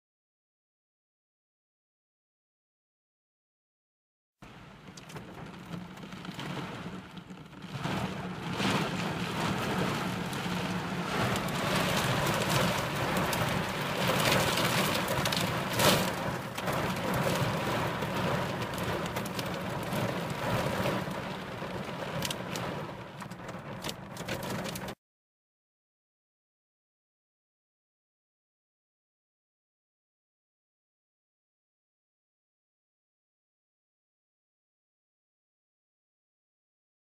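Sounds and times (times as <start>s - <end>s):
heavy rain on car windshield: 4.4s - 25.0s.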